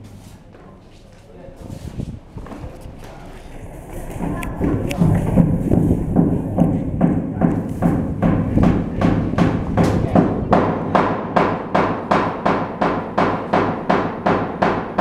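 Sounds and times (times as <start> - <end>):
low hum: 1.9 - 11.0.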